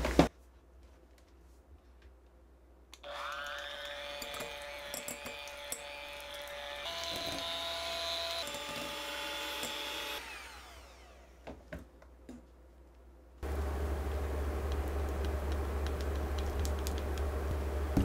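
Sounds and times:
hand mixer motor whine: 3.0s - 11.4s.

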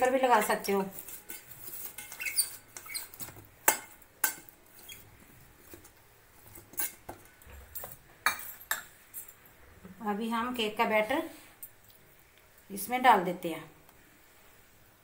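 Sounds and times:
brush rubbing inside metal pan: 0.4s - 3.3s
short high squeaks: 2.2s - 3.2s.

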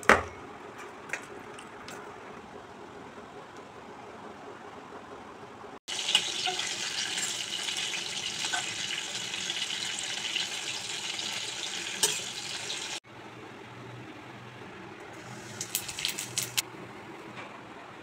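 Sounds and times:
fish sizzling in hot oil: 5.9s - 13.0s, 15.2s - 16.6s.

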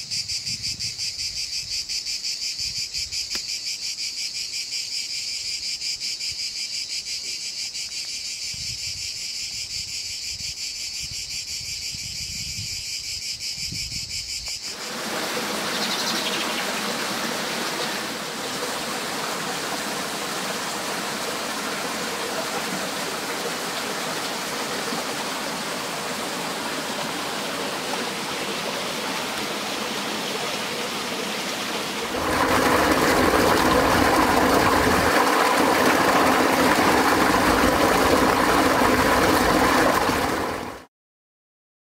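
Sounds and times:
insects chirring: 0.0s - 16.9s
flowing water rushing: 14.7s - 40.9s
waterfall splashing into pool: 14.7s - 40.9s.

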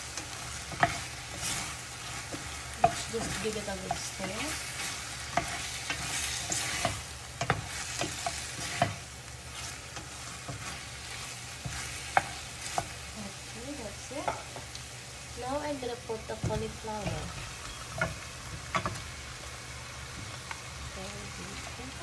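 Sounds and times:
chicken sizzling in oil: 0.0s - 22.0s
spoon tapping and scraping pan: 0.2s - 10.8s, 11.6s - 13.0s, 14.2s - 14.7s, 16.4s - 19.1s.

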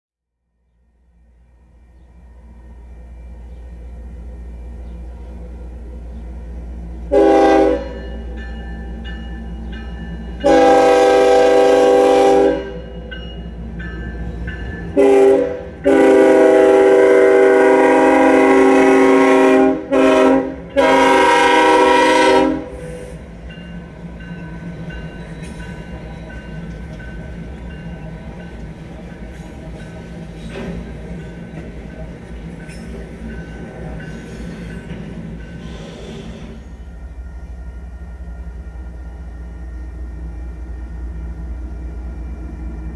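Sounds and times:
low train rumble: 0.3s - 42.9s
locomotive air horn blasts: 7.1s - 8.1s, 10.4s - 12.9s, 15.0s - 23.2s.

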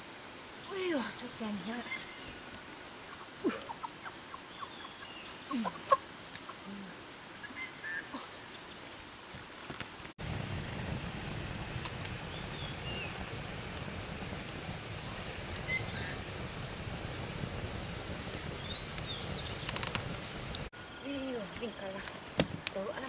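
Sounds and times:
campfire crackling: 0.0s - 23.0s
scattered ticks: 18.3s - 20.6s.

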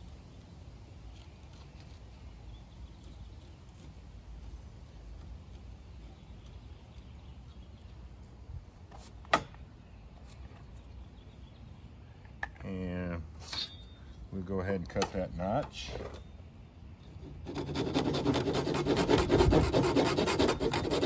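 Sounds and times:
knife scraping wood: 0.3s - 8.0s, 17.0s - 21.0s
wind rumble on microphone: 18.9s - 20.9s.

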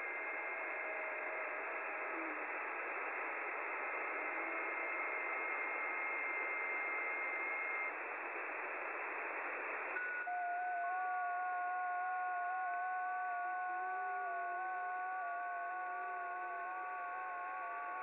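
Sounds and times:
radio hiss: 0.0s - 10.0s.

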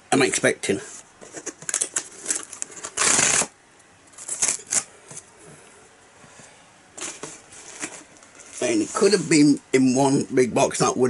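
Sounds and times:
packaging rustling: 1.2s - 3.5s.

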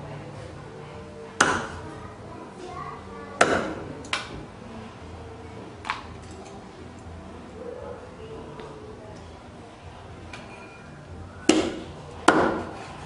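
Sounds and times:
cleaver chopping on wooden block: 1.4s - 1.8s, 3.4s - 3.8s, 11.5s - 12.7s.

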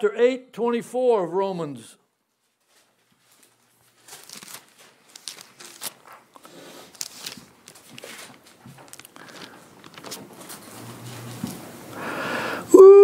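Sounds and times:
paper pages rustling: 2.4s - 11.7s.

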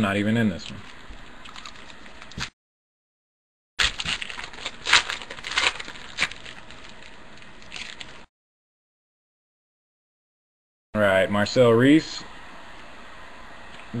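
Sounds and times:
card pack wrapper crinkling: 3.8s - 8.3s.

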